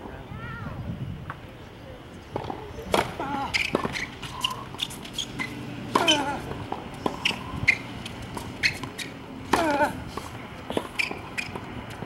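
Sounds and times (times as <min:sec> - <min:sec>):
shoes squeaking on court: 0:02.3 - 0:12.0
racquet hitting tennis ball: 0:02.4 - 0:10.0.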